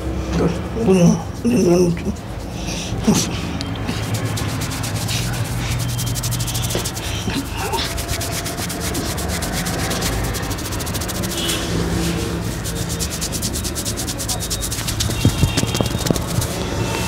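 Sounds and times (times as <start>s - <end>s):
fingers scratching through hair: 1.3s - 17.0s.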